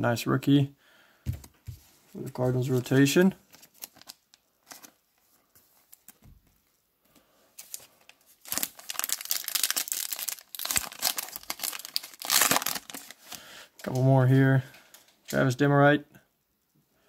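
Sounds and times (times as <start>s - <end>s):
foil wrapper crinkling and tearing: 2.8s - 5.0s, 7.6s - 13.9s.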